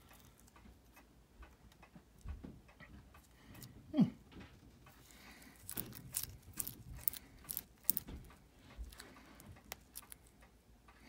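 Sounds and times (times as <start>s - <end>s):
metallic watch clicks: 5.6s - 10.5s.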